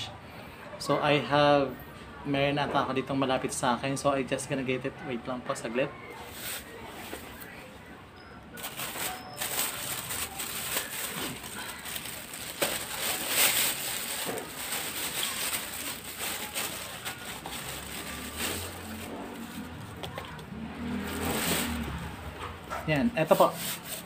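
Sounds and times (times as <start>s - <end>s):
rustling and handling noise: 6.2s - 7.6s, 8.6s - 24.0s.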